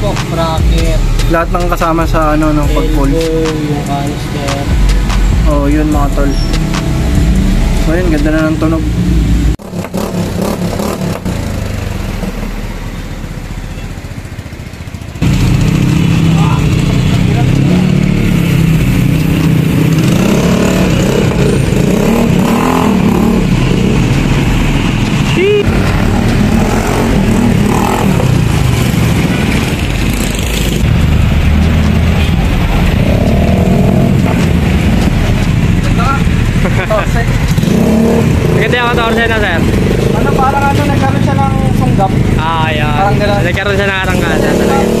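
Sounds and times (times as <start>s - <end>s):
scooter engine running: 6.8s - 45.0s.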